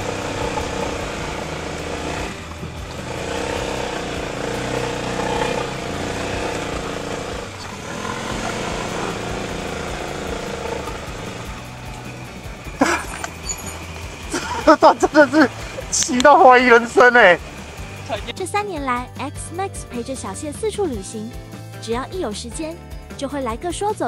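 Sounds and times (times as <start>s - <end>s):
tyres on gravel: 0.0s - 18.3s
motor scooter engine running: 0.0s - 19.1s.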